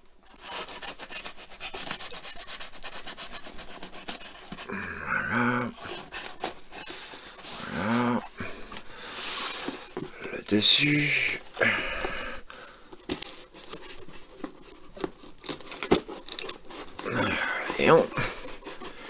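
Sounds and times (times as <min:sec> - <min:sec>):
knife slitting packing tape: 0:00.2 - 0:04.7, 0:05.7 - 0:07.1, 0:11.2 - 0:19.0.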